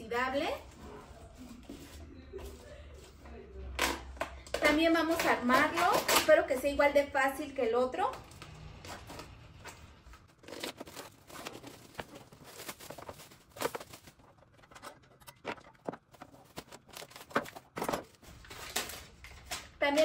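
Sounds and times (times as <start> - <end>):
packaging rustling and tearing: 10.3 - 19.8
loose parts clicking and knocking: 14.2 - 18.2.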